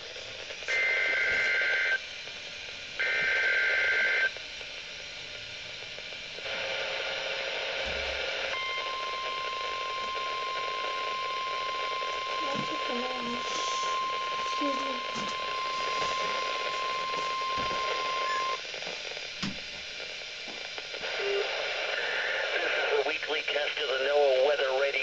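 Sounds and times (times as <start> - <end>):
radio hiss and static: 0.0 - 25.0
data bursts of two steady tones: 8.5 - 18.6
steady warning alarm tone: 8.5 - 18.6.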